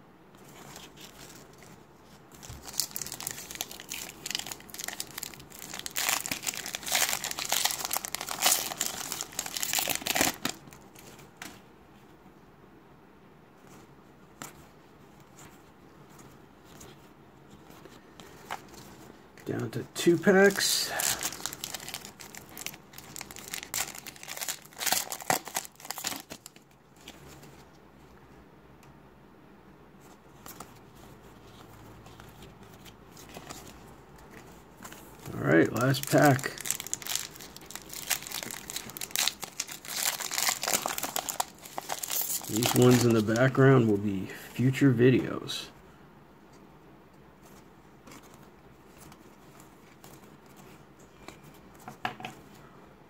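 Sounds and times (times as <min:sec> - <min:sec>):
cards rustling: 0:00.4 - 0:11.6, 0:15.2 - 0:27.6, 0:30.4 - 0:45.4
foil wrapper crinkling and tearing: 0:02.4 - 0:11.1, 0:20.2 - 0:27.1, 0:35.0 - 0:43.6.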